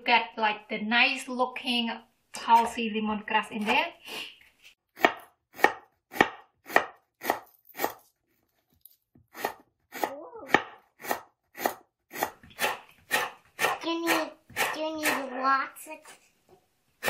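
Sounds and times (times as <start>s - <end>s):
knife chopping on wooden board: 5.0s - 8.0s, 9.3s - 15.2s.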